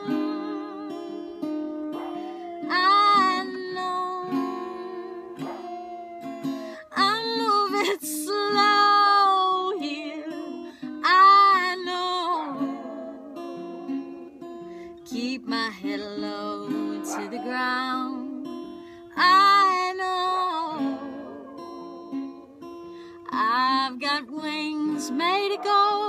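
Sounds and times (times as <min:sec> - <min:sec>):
acoustic guitar: 0:00.0 - 0:26.0
woman singing: 0:00.0 - 0:26.0.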